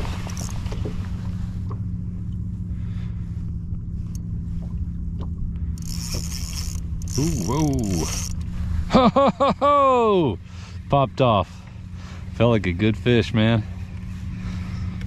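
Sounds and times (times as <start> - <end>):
kayak drive low hum: 0.0 - 15.0
high hissing buzz: 5.6 - 8.8.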